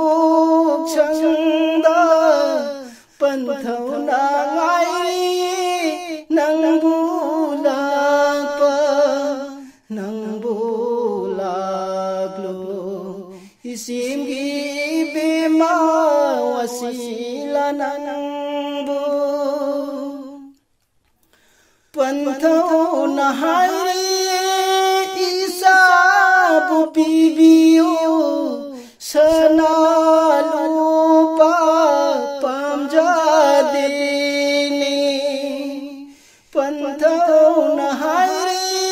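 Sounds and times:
man singing unaccompanied: 0.0s - 20.6s, 21.9s - 38.9s.

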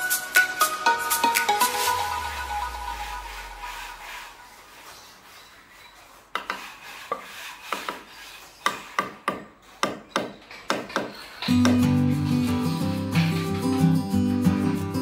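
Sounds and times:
background music: 0.0s - 4.8s, 11.4s - 15.0s
hand tool tapping concrete block: 8.6s - 11.9s.

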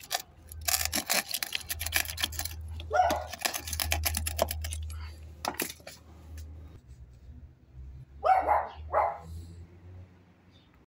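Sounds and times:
rubble clicking and scraping: 0.0s - 6.1s
dog barking: 2.9s - 3.3s, 8.2s - 9.3s.

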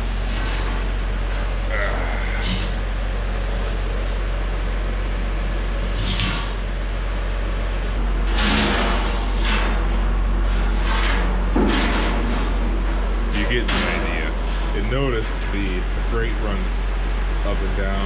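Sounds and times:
low hum: 0.0s - 18.0s
metal grate scraping and clanking: 8.2s - 12.6s.

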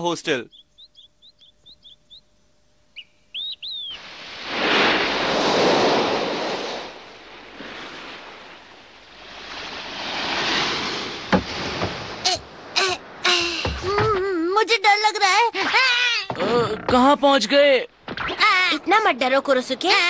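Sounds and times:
bird chirps: 0.3s - 4.0s
waves washing onto sandy shore: 4.0s - 13.9s.

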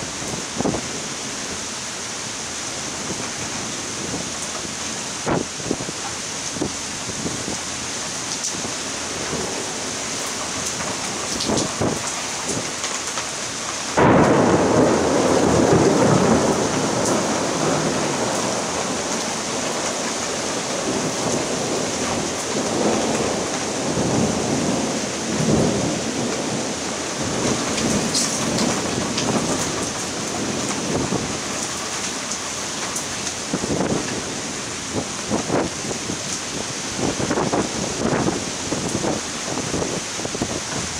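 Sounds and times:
torrential rain hissing: 0.0s - 40.9s
rumbling thunder: 14.0s - 31.4s.

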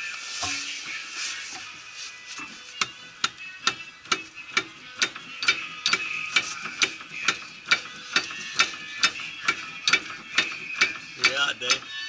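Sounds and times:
ratchet wrench clicking: 3.2s - 11.8s.

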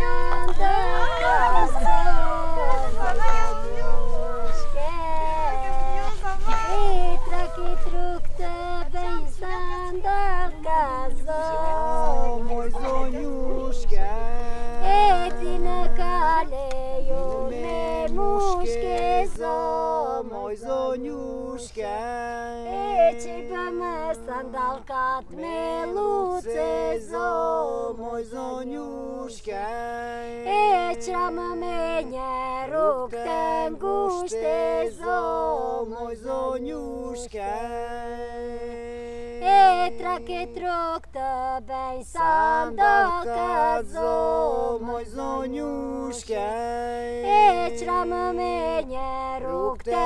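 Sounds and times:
held drone note: 0.0s - 19.4s
voices singing without instruments: 0.0s - 50.0s.

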